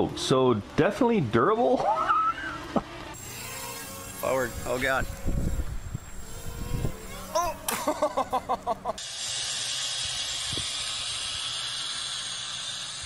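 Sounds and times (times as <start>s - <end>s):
person laughing: 1.9s - 3.0s, 7.3s - 9.0s
drone propellers hissing: 3.2s - 13.0s.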